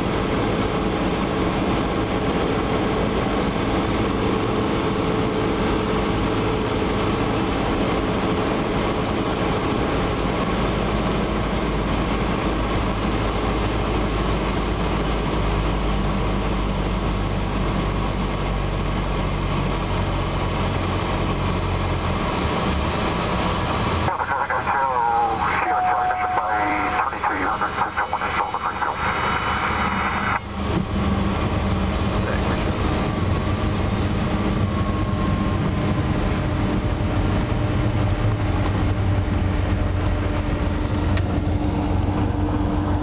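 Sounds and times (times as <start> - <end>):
aircraft engine and propeller droning: 0.0 - 43.0
airflow noise: 24.1 - 31.0.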